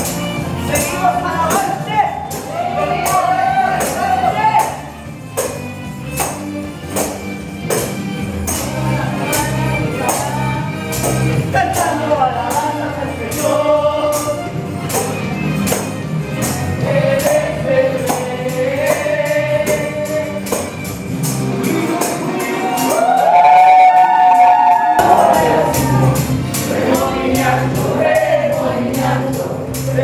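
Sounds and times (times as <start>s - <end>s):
tambourine jingling: 0.0s - 30.0s
worship singing: 8.6s - 14.6s, 16.7s - 20.7s, 21.5s - 30.0s.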